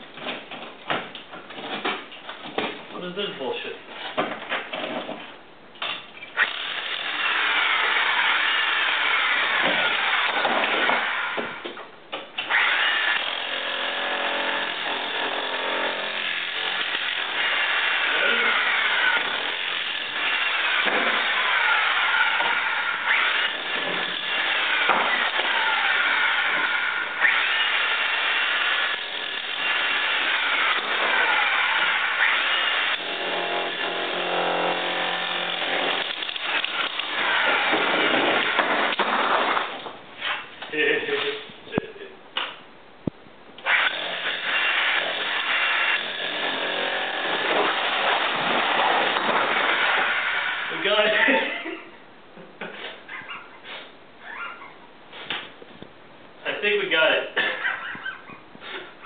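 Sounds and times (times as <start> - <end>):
electric jackhammer chipping brick: 6.4 - 11.6, 12.4 - 40.4, 43.6 - 51.2.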